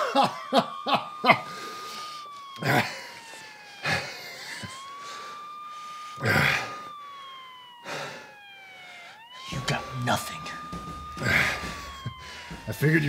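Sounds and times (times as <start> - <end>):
man coughing harshly: 0.0 - 0.6
police siren wailing: 0.0 - 13.0.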